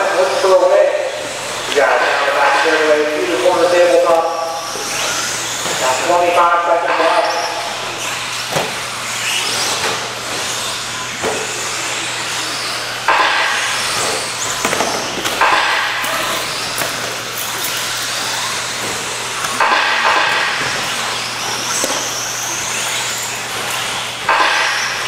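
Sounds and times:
sharp knocks: 13.1 - 17.0, 18.8 - 21.0, 24.2 - 25.0.

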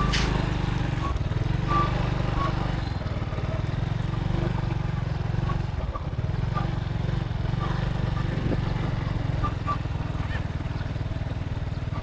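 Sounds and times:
motorbike engine rumble: 0.0 - 12.0
wind on microphone: 8.2 - 9.0.

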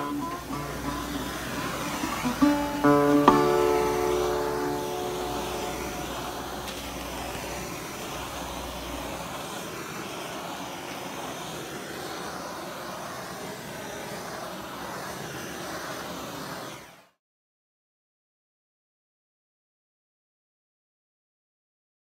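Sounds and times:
heat gun hissing: 0.0 - 17.1.

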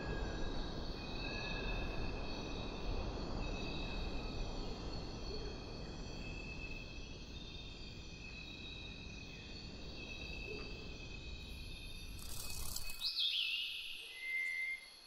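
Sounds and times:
insects trilling: 5.7 - 15.0.

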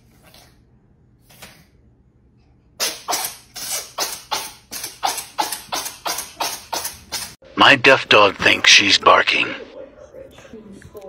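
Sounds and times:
cat coughing: 3.1 - 7.0.

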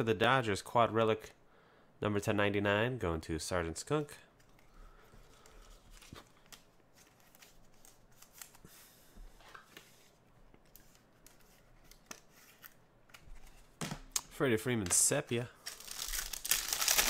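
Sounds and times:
cards clicking and rustling: 10.6 - 15.0.

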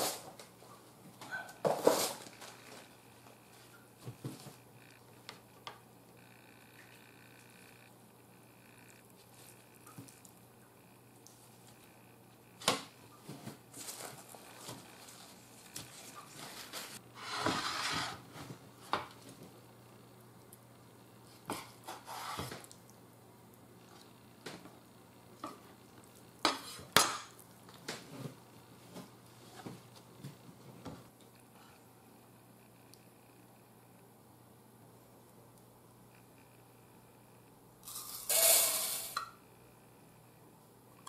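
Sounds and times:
paper towel rustling: 13.2 - 17.0.

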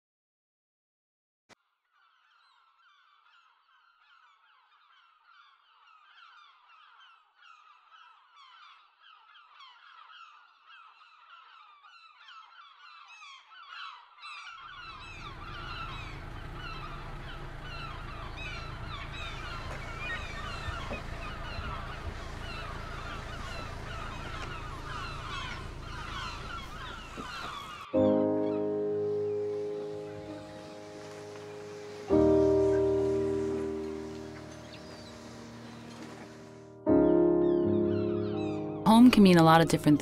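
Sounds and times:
flock of birds calling: 2.0 - 36.8, 37.4 - 40.0
low steady rumble: 14.8 - 27.8.

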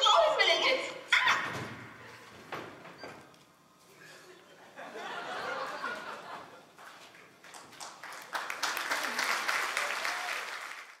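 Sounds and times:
audience applauding: 6.8 - 11.0.

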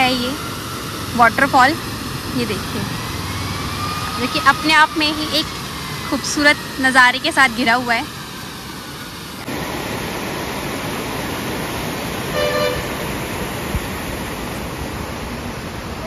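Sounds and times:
waterfall rushing: 0.0 - 16.0
vehicle horn toot: 12.3 - 13.1.

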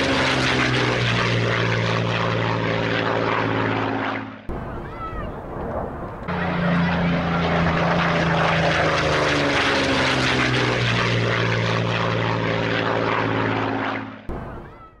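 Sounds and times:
propeller aircraft engine running: 0.0 - 15.0.

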